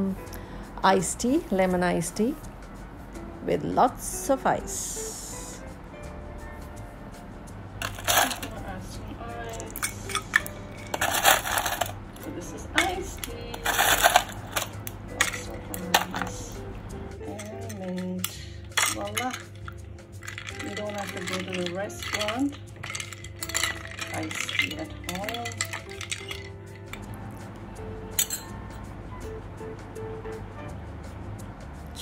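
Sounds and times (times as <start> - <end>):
ice cubes clinking in glass: 7.8 - 8.6, 9.5 - 12.0, 13.6 - 16.4, 17.4 - 27.1
spoon stirring and knocking glass: 17.3 - 27.0.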